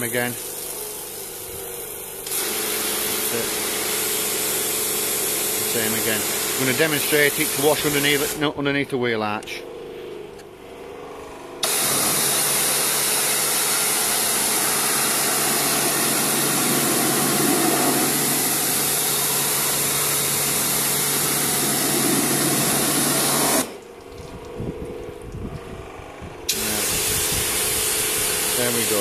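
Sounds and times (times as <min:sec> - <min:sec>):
pressure washer water jet hiss: 0:00.0 - 0:08.4, 0:11.6 - 0:23.8, 0:26.5 - 0:29.0
low pump hum: 0:09.7 - 0:26.5.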